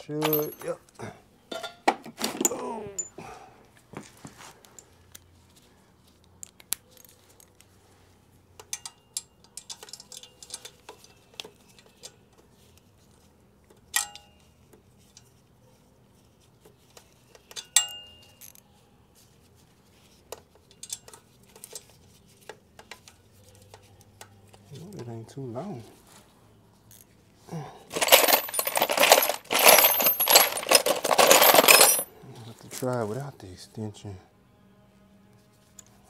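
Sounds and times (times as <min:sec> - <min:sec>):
metal sockets clinking and rattling: 0:00.0 - 0:00.9, 0:08.6 - 0:12.3, 0:13.7 - 0:14.5, 0:17.0 - 0:18.6, 0:20.6 - 0:22.0, 0:27.9 - 0:32.1
ringing metal clinks: 0:00.1 - 0:00.8, 0:17.6 - 0:18.6, 0:28.0 - 0:32.1.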